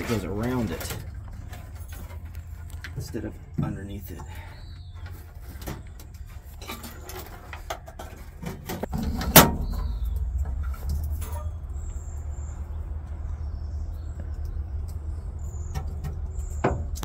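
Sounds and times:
wiring handling clicks and rustles: 0.0 - 12.1
low steady rumble: 0.0 - 17.0.

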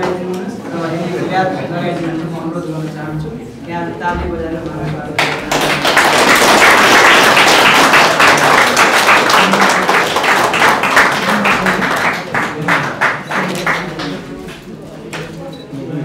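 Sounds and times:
audience applauding: 5.2 - 14.3.

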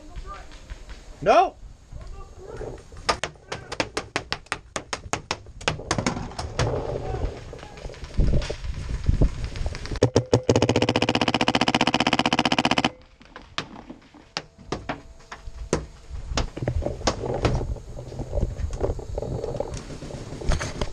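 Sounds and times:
sharp cracks: 3.0 - 14.5.

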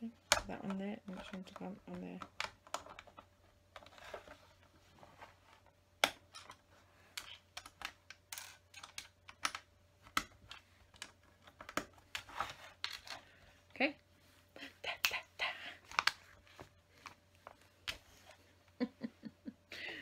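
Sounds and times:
plastic toy bricks clicking: 7.2 - 11.9.

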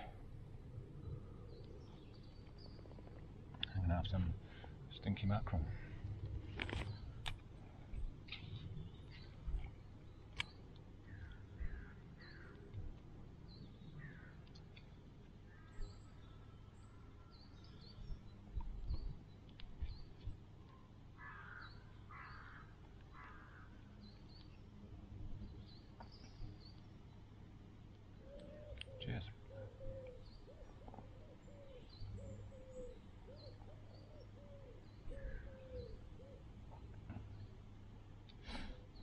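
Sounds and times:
birds chirping: 0.0 - 39.0
harsh crow-like calls: 11.1 - 12.6, 14.0 - 14.4, 21.2 - 23.8, 34.4 - 36.4.

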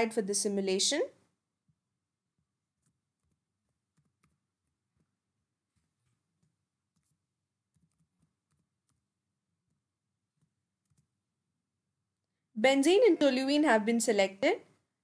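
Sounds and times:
keyboard typing: 1.6 - 11.4.

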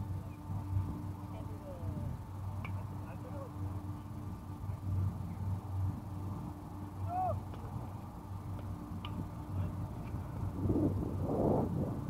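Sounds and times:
wind buffeting microphone: 4.2 - 12.0
faint sharp ticks: 8.5 - 9.2.

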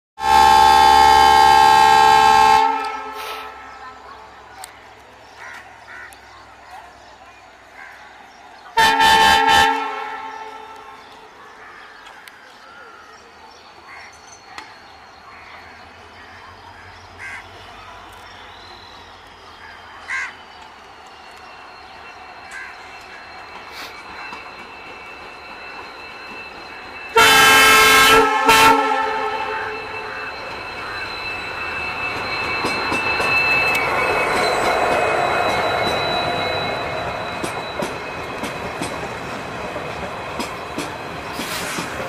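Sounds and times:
locomotive horn blast: 0.2 - 3.8, 8.8 - 10.9, 27.1 - 30.5
train rumble: 0.2 - 42.0
crows cawing: 5.4 - 6.2, 16.8 - 17.5, 19.7 - 20.4.

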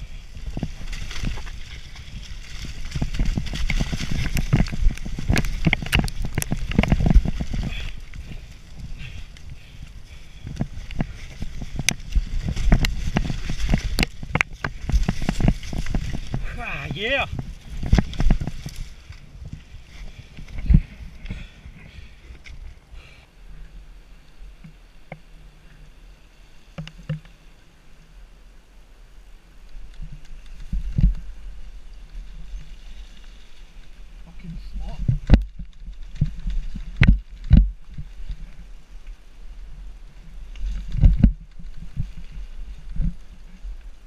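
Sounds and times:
bike rattling and knocking: 0.0 - 22.5, 34.9 - 38.6
wind on microphone: 0.0 - 22.8, 30.0 - 44.0
bike tyres rumbling on dirt: 0.0 - 27.5, 29.3 - 44.0.

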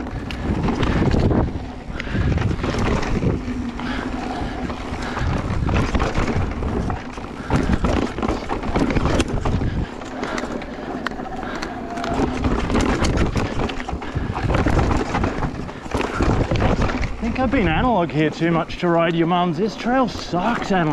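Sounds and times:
bike clattering over bumps: 0.0 - 20.9
tyres on dirt: 0.0 - 20.9
wind buffeting microphone: 0.0 - 20.9.

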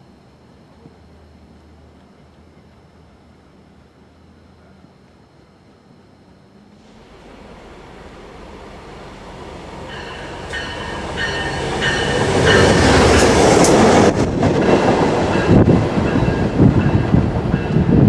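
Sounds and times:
diesel locomotives passing: 6.5 - 18.0
wheels clacking over rail joints: 6.8 - 17.2.

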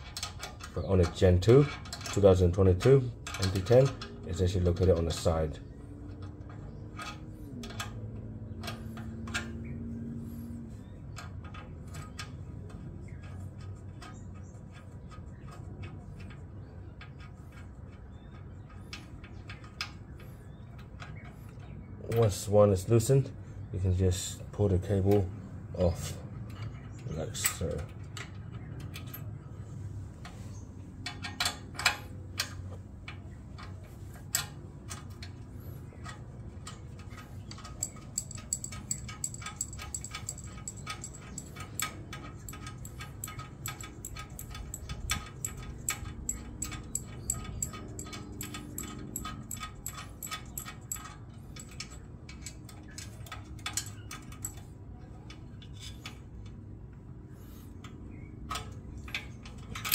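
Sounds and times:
hand tools clicking on metal: 0.0 - 10.2, 24.8 - 29.4, 30.2 - 59.9.

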